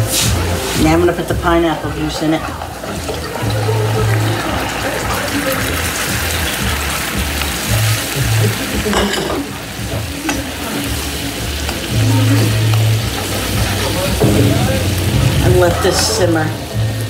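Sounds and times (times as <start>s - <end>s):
juice sizzling in a skillet: 0.0s - 17.0s
spoon stirring: 8.9s - 9.5s
spoon tapping a pan: 8.9s - 9.6s.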